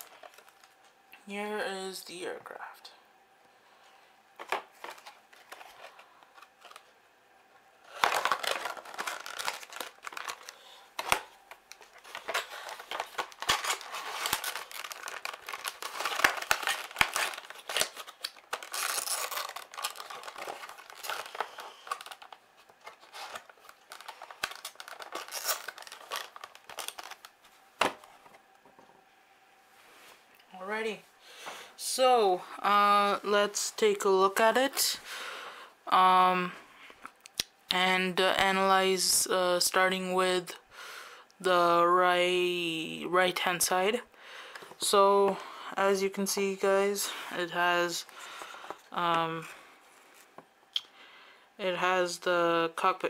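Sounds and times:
plastic packaging crinkling: 0.0s - 0.9s, 4.4s - 6.9s, 7.8s - 28.5s.

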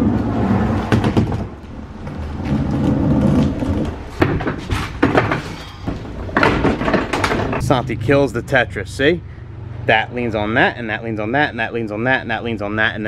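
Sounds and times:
case casters rolling over asphalt: 0.0s - 7.7s.

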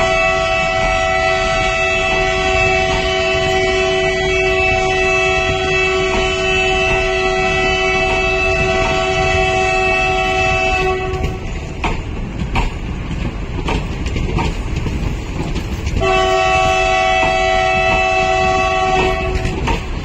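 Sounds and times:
train horn blast: 0.0s - 11.6s, 16.0s - 19.9s
moving train rumble: 0.0s - 20.0s.

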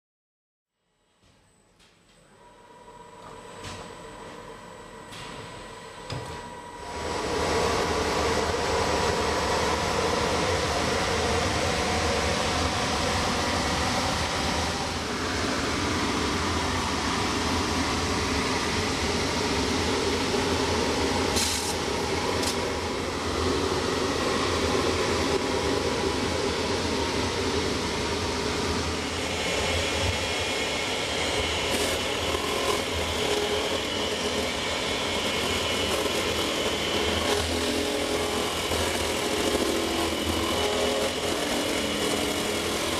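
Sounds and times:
machine grinding wood: 28.2s - 42.9s.

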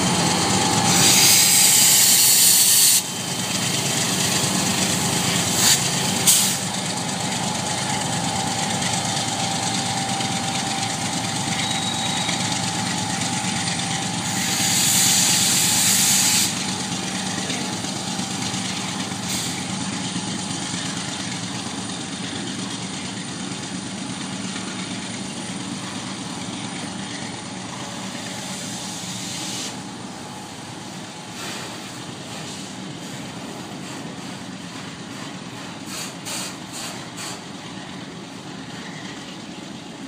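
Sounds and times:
freight train wheels on rail: 0.0s - 40.0s.

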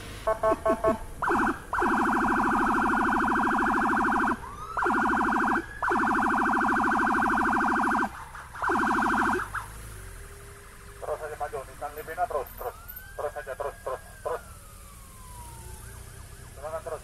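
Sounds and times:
electronic siren fast-pulsing tone: 0.3s - 9.7s.

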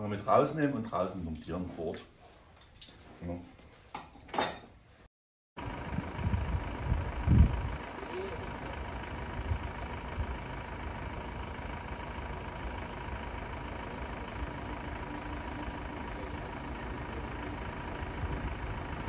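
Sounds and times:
van engine idling: 5.6s - 19.0s.

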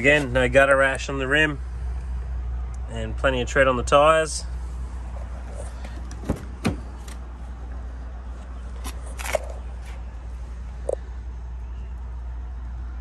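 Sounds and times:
steady low rumble: 0.0s - 13.0s
car door clicks and knocks: 5.9s - 7.2s.

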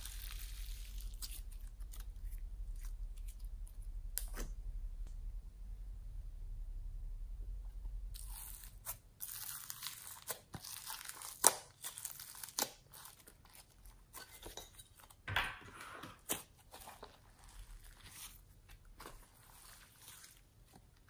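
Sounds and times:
slime crackling and tearing: 0.0s - 4.5s, 8.2s - 14.2s, 16.2s - 20.6s.

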